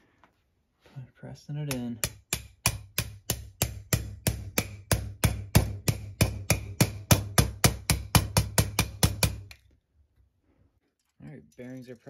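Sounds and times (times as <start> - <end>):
mallet striking metal bar: 1.7 - 9.5.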